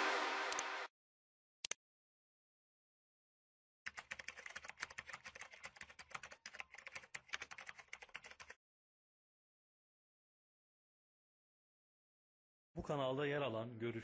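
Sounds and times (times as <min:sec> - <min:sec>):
fast keyboard typing clicks: 0:03.9 - 0:08.6.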